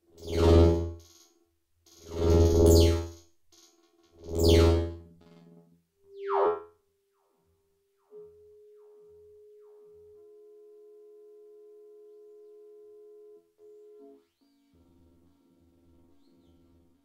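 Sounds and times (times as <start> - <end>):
synthesizer notes with falling sweep: 2.1 - 3.2, 4.2 - 6.8
held synthesizer tone: 6.1 - 6.8.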